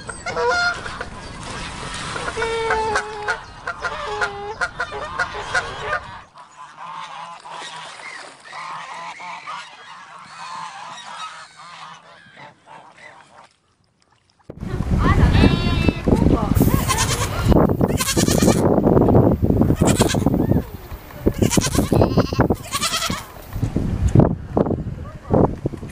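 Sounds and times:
flamingos honking: 0:16.6 - 0:23.5.

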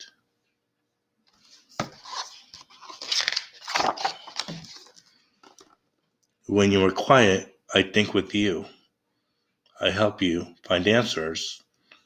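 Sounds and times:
paper page rustling and sliding: 0:01.3 - 0:05.7.

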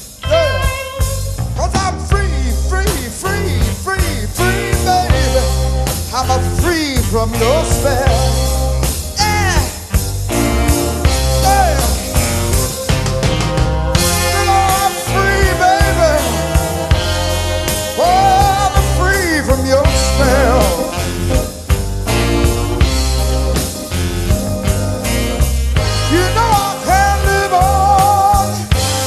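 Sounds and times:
live blues band: 0:00.0 - 0:29.0
person singing: 0:00.2 - 0:12.3, 0:14.0 - 0:21.6, 0:25.9 - 0:29.0.

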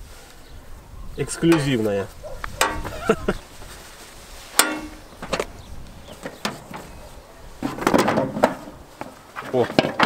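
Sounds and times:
metal clicks and knocks: 0:02.6 - 0:02.9, 0:04.6 - 0:05.5, 0:06.2 - 0:06.9.

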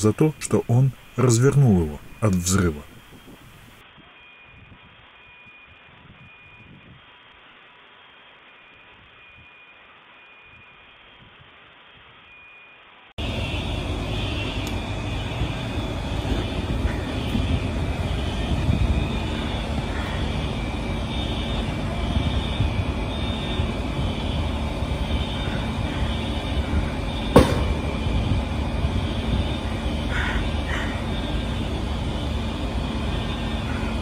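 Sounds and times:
loud rumbling fire: 0:13.2 - 0:34.0
sharp crack: 0:27.3 - 0:28.2.

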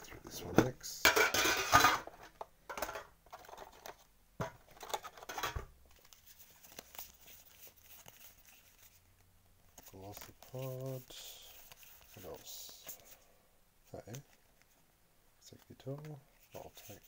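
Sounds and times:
cards rustling and sliding: 0:04.7 - 0:13.2, 0:15.5 - 0:17.0.

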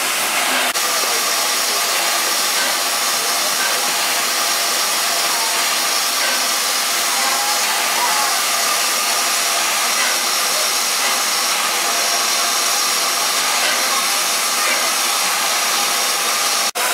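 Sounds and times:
steam hissing: 0:00.0 - 0:16.9.

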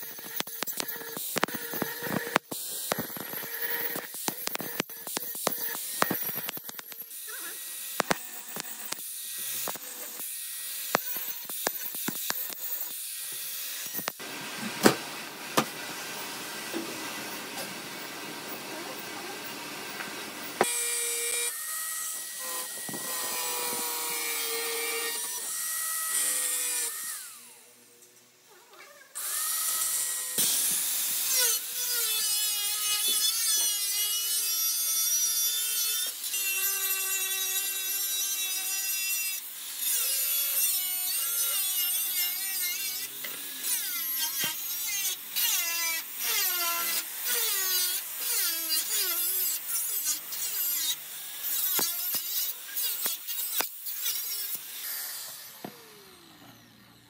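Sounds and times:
clicks and scraping: 0:00.0 - 0:07.2, 0:07.8 - 0:10.3, 0:10.9 - 0:13.0
power tool whining: 0:00.0 - 0:15.0, 0:20.4 - 0:27.7, 0:36.0 - 0:57.0.

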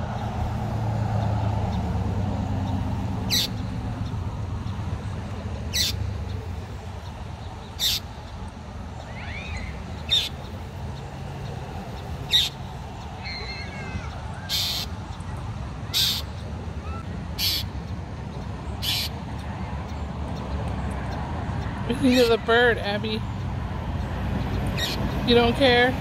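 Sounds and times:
low traffic rumble: 0:00.0 - 0:26.0
bird giving harsh calls: 0:03.3 - 0:03.7, 0:05.7 - 0:06.1, 0:07.7 - 0:08.2, 0:09.0 - 0:10.5, 0:12.3 - 0:15.0, 0:15.9 - 0:17.8, 0:18.8 - 0:19.2, 0:24.8 - 0:25.2.

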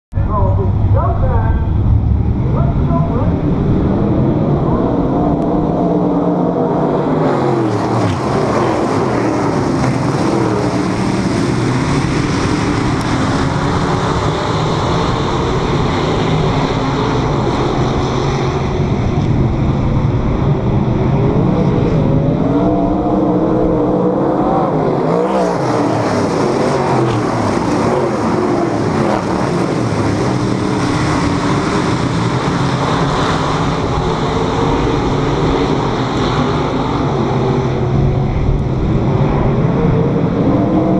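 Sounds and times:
race car engines running hard: 0:00.1 - 0:40.9.

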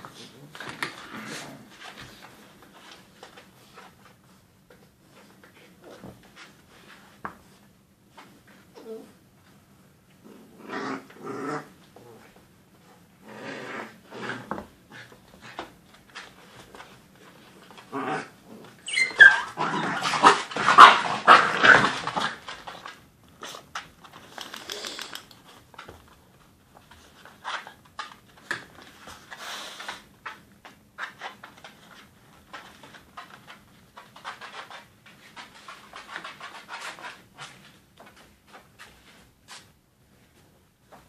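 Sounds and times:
puppies growling: 0:10.2 - 0:12.3, 0:13.2 - 0:15.0
puppies yelping: 0:18.8 - 0:20.1
claws clicking on laminate floor: 0:23.8 - 0:26.2.

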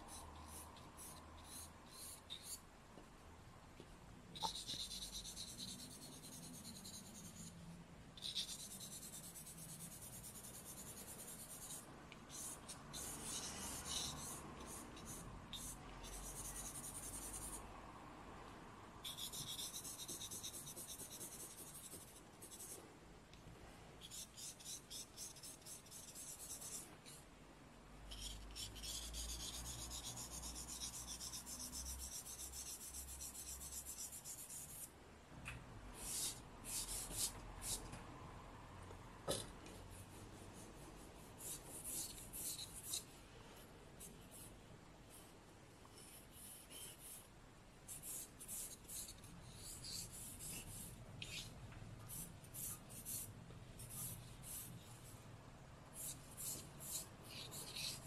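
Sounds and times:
charcoal scratching on paper: 0:00.0 - 0:02.6, 0:04.4 - 0:07.6, 0:08.2 - 0:17.6, 0:19.0 - 0:22.8, 0:24.0 - 0:27.2, 0:28.1 - 0:34.9, 0:36.0 - 0:37.9, 0:39.9 - 0:43.2, 0:44.0 - 0:45.3, 0:45.9 - 0:47.3, 0:47.9 - 0:55.2, 0:56.0 - 0:58.0.

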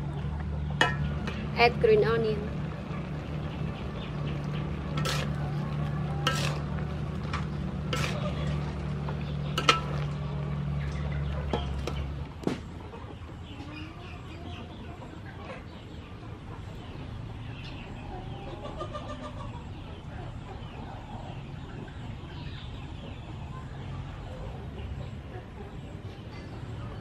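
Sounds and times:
chickens clucking: 0:00.0 - 0:27.0
metal spatula clanking on wok: 0:00.8 - 0:01.5, 0:04.8 - 0:05.6, 0:06.2 - 0:10.2.

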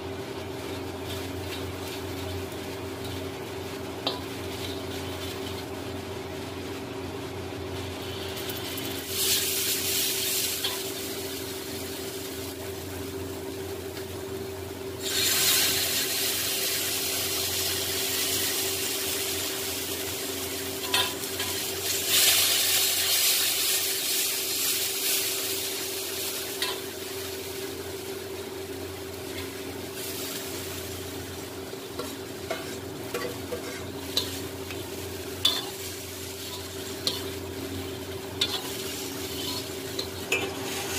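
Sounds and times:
spices sizzling in a pan: 0:00.0 - 0:40.9
steady low hum: 0:25.2 - 0:40.9
metal spoon scraping a pan: 0:32.0 - 0:34.4, 0:35.4 - 0:35.8, 0:38.4 - 0:40.9.

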